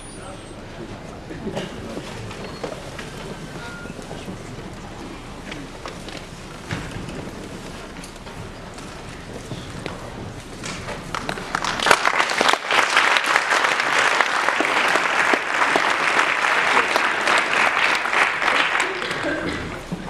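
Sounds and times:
audience applauding: 0:10.6 - 0:20.0.

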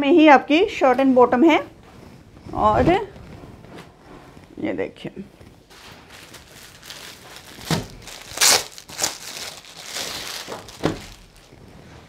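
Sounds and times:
cloth rustling: 0:00.9 - 0:12.0
plastic packaging crinkling: 0:05.6 - 0:11.6.

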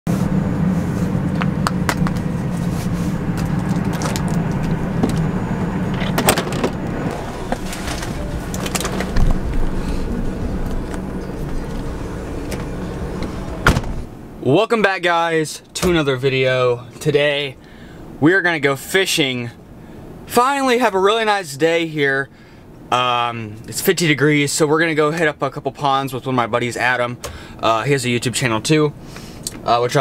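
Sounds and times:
vehicle engine idling: 0:00.1 - 0:14.5
car door shutting: 0:03.3 - 0:14.1.

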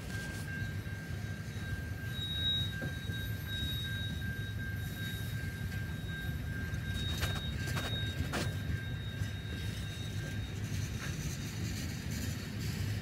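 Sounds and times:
thin steady whine: 0:00.0 - 0:13.0
train wheels rumbling on rail: 0:00.0 - 0:13.0
high wheel squeal: 0:06.6 - 0:13.0.

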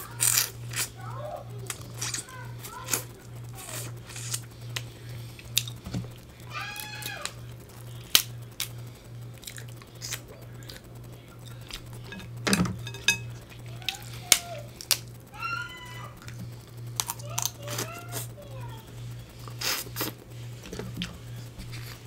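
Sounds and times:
crab shells cracking: 0:00.0 - 0:01.0, 0:01.6 - 0:15.3, 0:16.2 - 0:17.8
low steady hum: 0:00.0 - 0:22.0.

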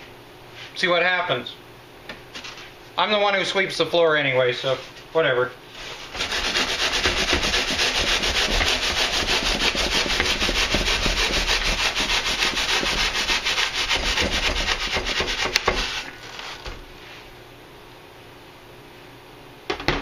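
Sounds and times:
hand saw cutting foam: 0:05.9 - 0:16.6.

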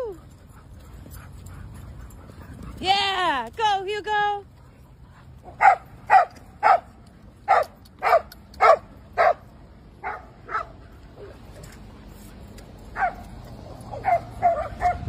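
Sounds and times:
dog barking: 0:05.5 - 0:06.9, 0:07.5 - 0:10.8, 0:13.0 - 0:13.2, 0:13.9 - 0:15.0.

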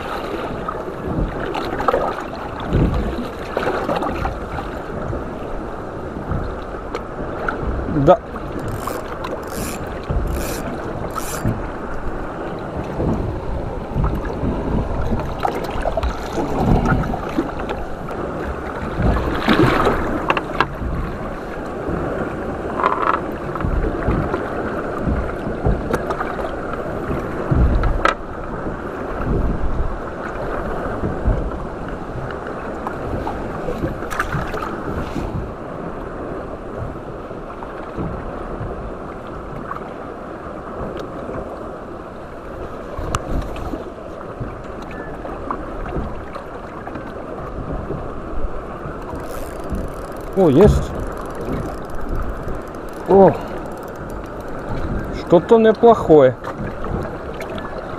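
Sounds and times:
water lapping against boat hull: 0:00.0 - 0:57.9
wind buffeting microphone: 0:00.0 - 0:57.9
short knocks: 0:49.1 - 0:55.2.

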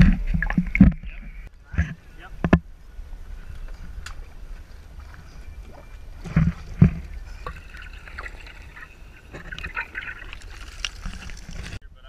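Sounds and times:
water lapping against boat hull: 0:03.6 - 0:11.8.

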